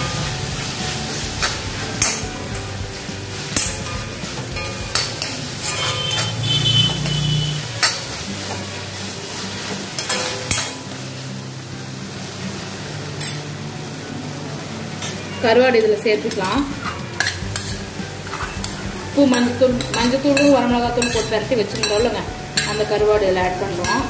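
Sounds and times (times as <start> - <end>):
food sizzling: 0.0 - 24.0
spoon scraping pan: 3.4 - 10.7, 16.2 - 24.0
spoon clinking against pan: 18.4 - 23.0.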